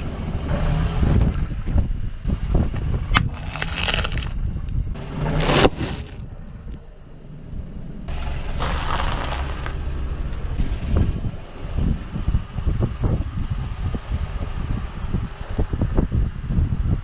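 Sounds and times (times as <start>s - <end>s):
car engine running low: 0.0s - 17.0s
tyre crushing corn puffs: 3.3s - 4.4s, 8.6s - 9.8s.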